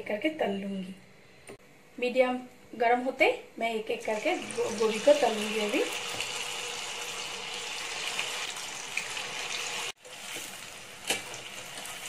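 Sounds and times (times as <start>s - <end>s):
food sizzling in hot oil: 4.0s - 12.0s.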